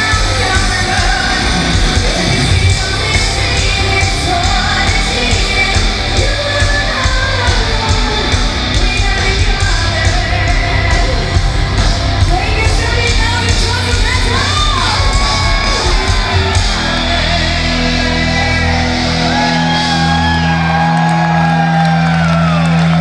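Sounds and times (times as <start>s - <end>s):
woman singing: 0.0s - 17.6s
distorted guitars: 0.0s - 23.0s
metal band playing live: 0.0s - 23.0s.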